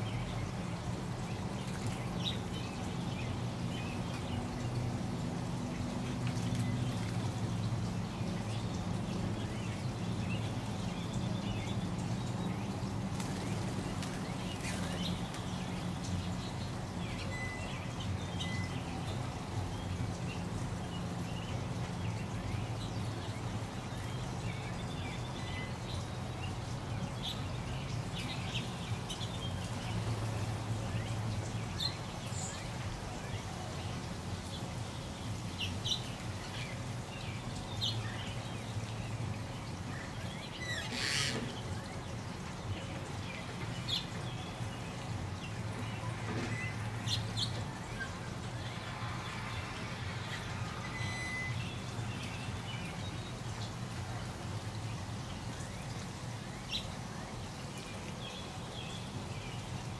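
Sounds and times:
water trickling over pebbles: 0.0s - 59.9s
bird chirps: 17.1s - 19.0s, 50.7s - 52.1s.

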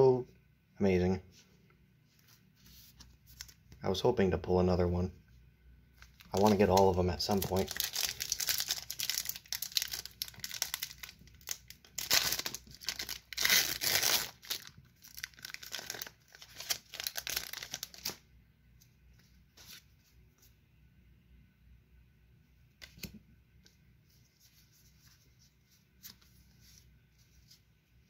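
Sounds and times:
cards being handled: 2.1s - 3.7s, 22.8s - 27.7s
foil wrapper tearing and crinkling: 6.0s - 18.2s.

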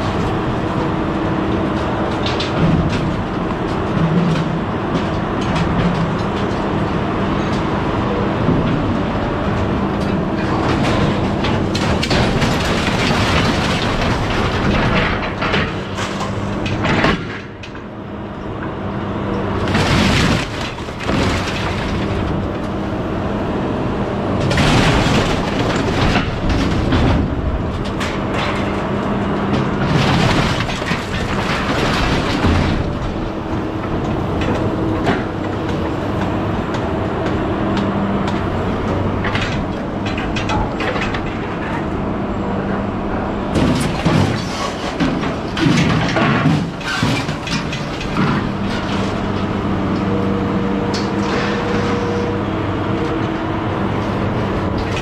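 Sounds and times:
engine and hydraulic hum: 0.0s - 55.0s
scrap metal clattering: 43.5s - 49.5s.

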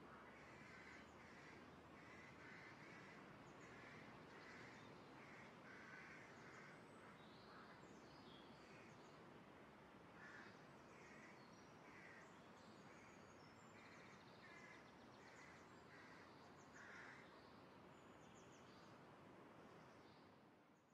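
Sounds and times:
low steady hiss: 0.0s - 20.9s
distant bird calling: 14.4s - 17.3s.

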